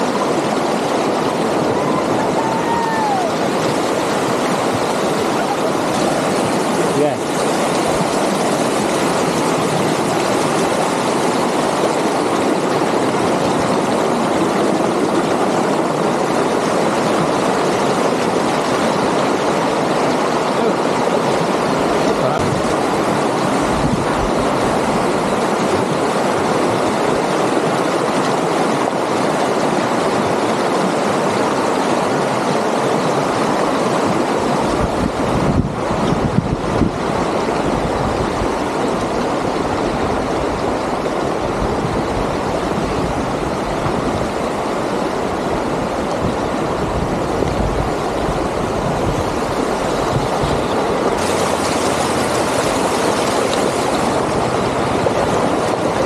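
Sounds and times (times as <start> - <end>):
river water flowing over stones: 0.0 - 56.0.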